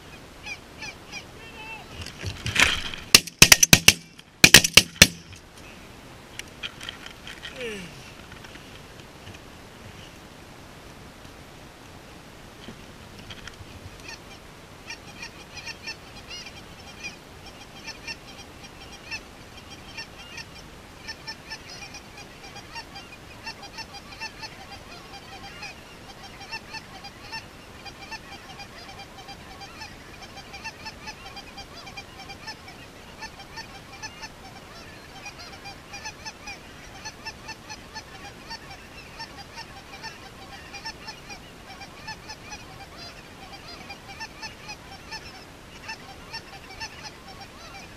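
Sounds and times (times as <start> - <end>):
geese honking: 0.4 - 2.0, 14.0 - 47.9.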